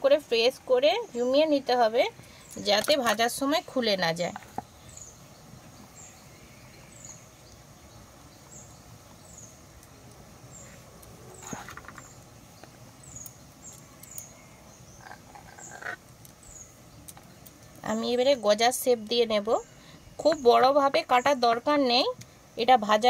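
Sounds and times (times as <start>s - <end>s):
loud animal calls: 15.0s - 16.0s.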